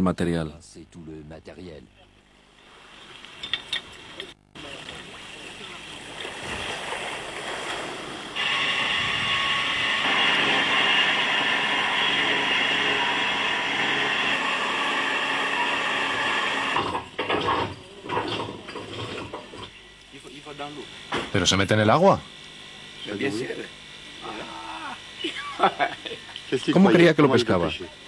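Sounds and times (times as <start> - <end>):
water sloshing: 2.6 - 8.4
electric winch motor whining: 6.8 - 19.6, 24.2 - 25.2.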